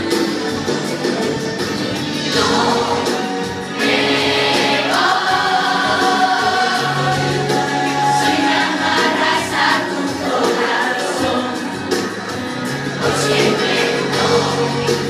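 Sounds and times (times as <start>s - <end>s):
group singing in chorus: 2.3s - 15.0s.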